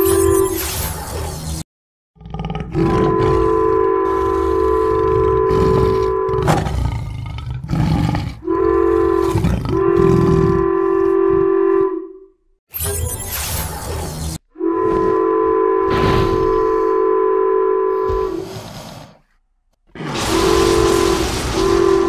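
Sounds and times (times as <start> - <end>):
train horn blowing: 2.9 - 6.5, 8.4 - 12.5, 14.5 - 18.5, 20.2 - 22.0.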